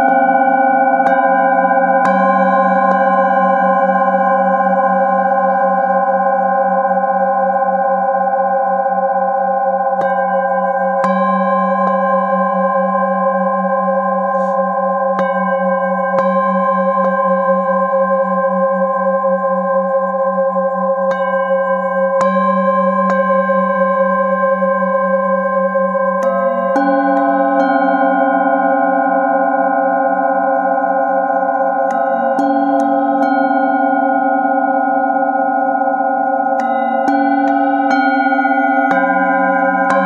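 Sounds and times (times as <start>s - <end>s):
singing bowls ringing: 0.0s - 40.0s
mallet striking a bowl: 36.5s - 40.0s.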